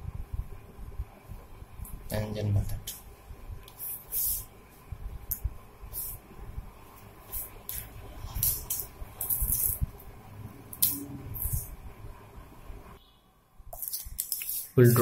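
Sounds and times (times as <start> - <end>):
faint low rumble: 4.5 - 13.0.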